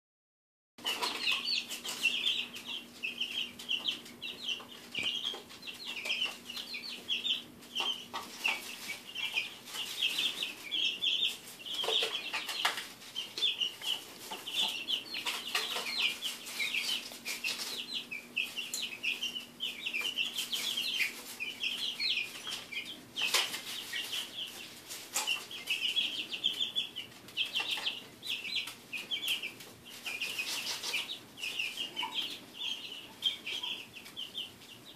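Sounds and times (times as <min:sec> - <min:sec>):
chicks cheeping: 0:00.8 - 0:34.9.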